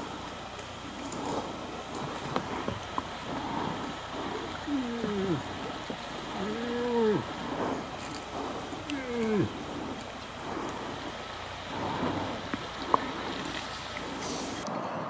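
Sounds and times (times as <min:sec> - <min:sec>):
moose calf calling: 0:00.9 - 0:13.5.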